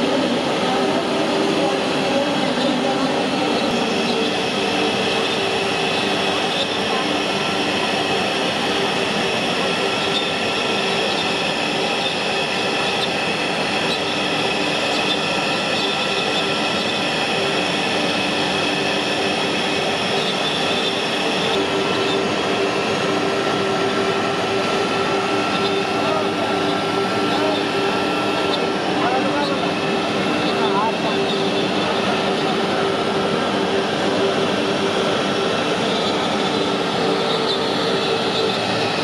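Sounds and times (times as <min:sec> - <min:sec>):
router bit cutting wood whine: 0:00.0 - 0:39.0
router spindle running: 0:00.0 - 0:39.0.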